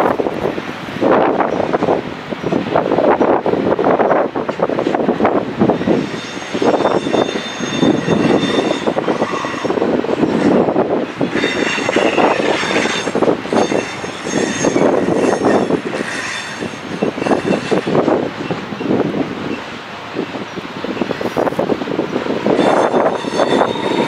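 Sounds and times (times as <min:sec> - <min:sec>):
freight train wheels clattering: 0:00.0 - 0:24.0
high wheel squeals: 0:05.8 - 0:24.0.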